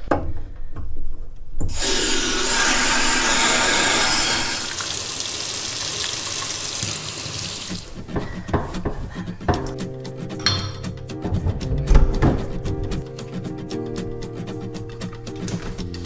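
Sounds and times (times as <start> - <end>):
water rushing: 1.7 - 7.9.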